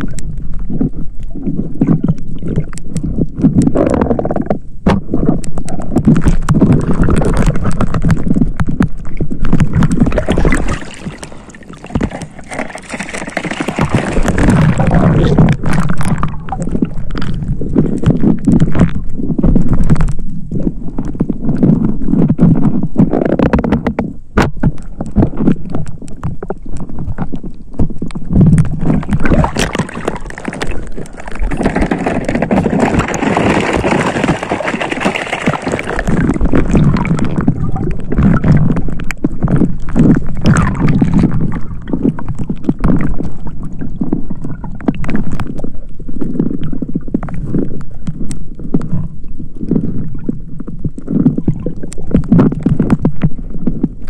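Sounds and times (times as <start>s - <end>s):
water sloshing and gurgling: 0.0s - 54.0s.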